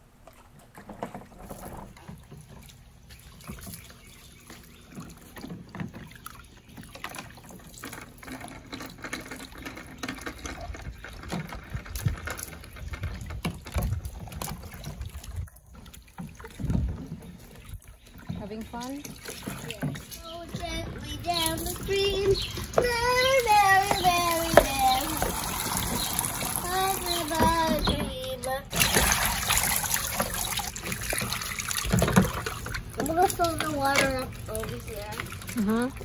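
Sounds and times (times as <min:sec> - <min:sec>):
water splashing and trickling: 0:00.0 - 0:36.0
plastic cups knocking: 0:21.6 - 0:26.1.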